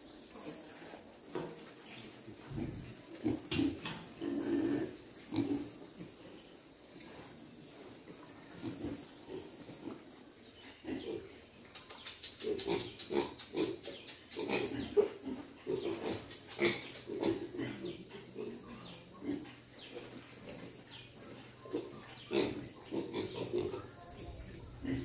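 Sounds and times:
thin high whine: 0.0 - 25.0
piglets grunting: 21.6 - 23.8.

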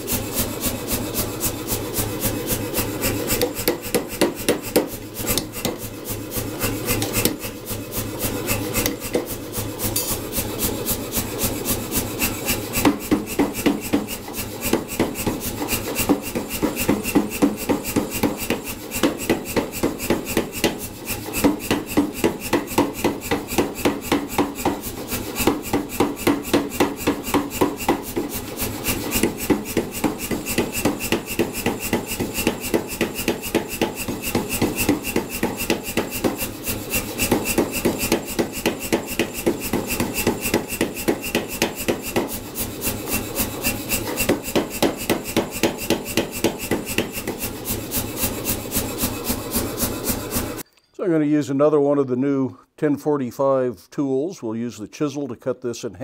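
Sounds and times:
power hammer striking hot steel: 0.0 - 50.6.

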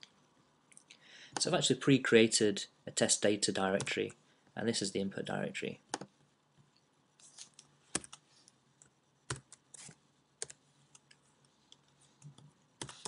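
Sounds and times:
computer keyboard keystrokes: 9.3 - 11.2.

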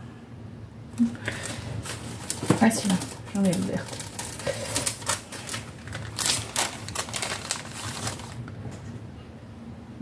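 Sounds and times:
plastic sheets crackling: 1.0 - 8.8.

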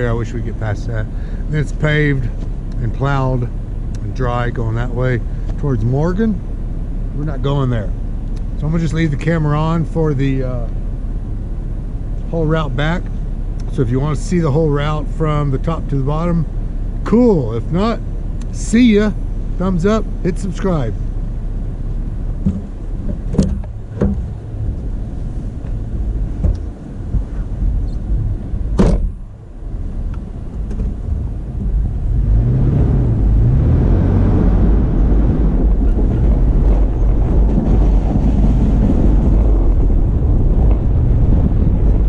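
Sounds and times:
car engine and tyre noise: 0.0 - 42.0
sharp knocks: 28.8 - 29.2.

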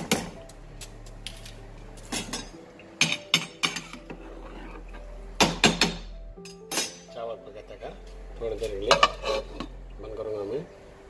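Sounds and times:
metal spoon scraping a pot: 3.7 - 5.0, 8.8 - 9.8.

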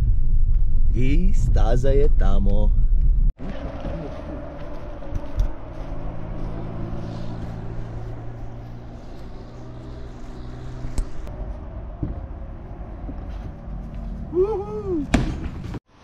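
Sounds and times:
vehicle engine running: 3.4 - 14.9.

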